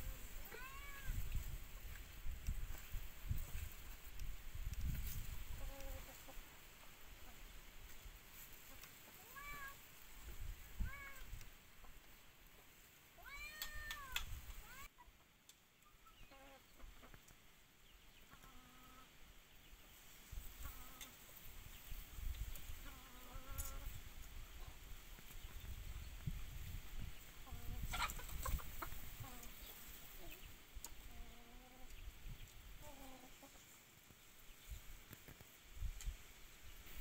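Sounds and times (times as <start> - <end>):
cat meowing: 0.5 - 1.2, 9.2 - 9.8, 13.2 - 14.9.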